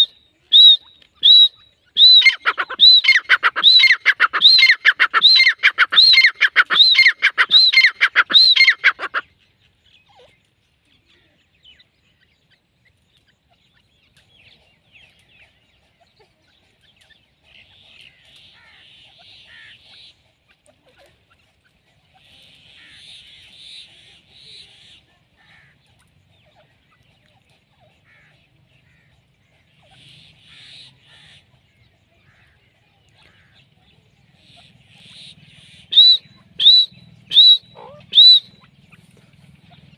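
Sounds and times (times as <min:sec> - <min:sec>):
bird shrill calls: 0:00.0 - 0:09.3, 0:35.0 - 0:39.0.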